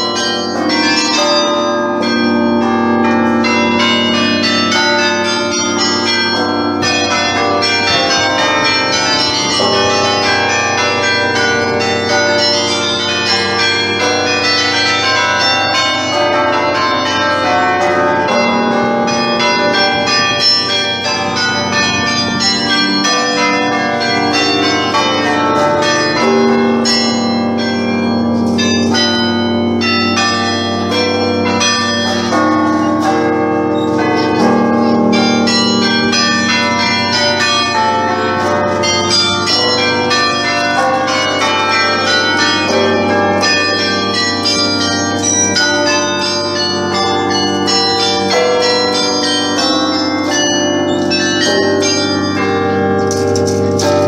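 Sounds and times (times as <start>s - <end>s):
carillon bells playing a tune: 0.0s - 54.0s.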